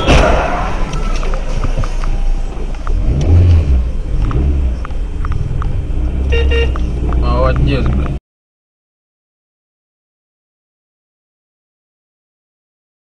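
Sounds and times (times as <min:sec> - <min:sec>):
car engine rumbling: 0:00.0 - 0:08.2.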